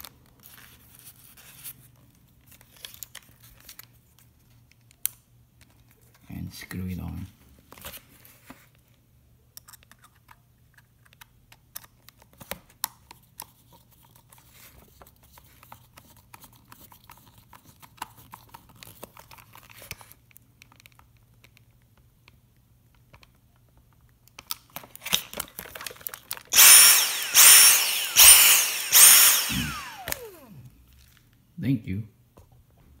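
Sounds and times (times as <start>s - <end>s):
plastic being handled: 23.1s - 26.6s
screwdriver clicks and scrapes: 26.5s - 30.6s.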